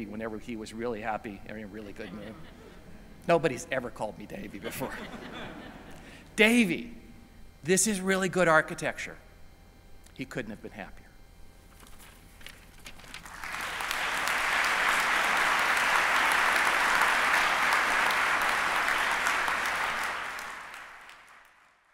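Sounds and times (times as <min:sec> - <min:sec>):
audience applauding: 0:13.0 - 0:21.9.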